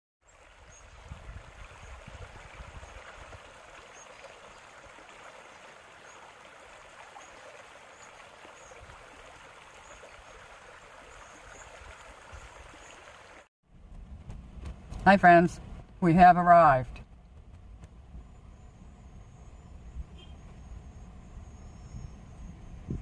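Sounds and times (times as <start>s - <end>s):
stream running over rocks: 0.2s - 13.5s.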